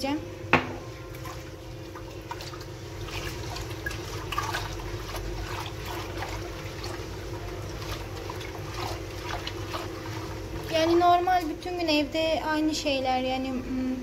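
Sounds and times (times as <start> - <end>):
steady low hum: 0.0 - 14.0
cloth sloshing in water: 1.0 - 11.5.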